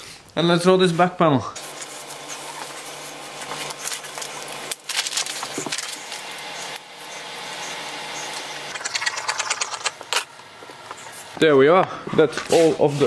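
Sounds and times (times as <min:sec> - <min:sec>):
steady low hum: 0:01.4 - 0:13.0
paper and fabric rustling: 0:01.8 - 0:06.2.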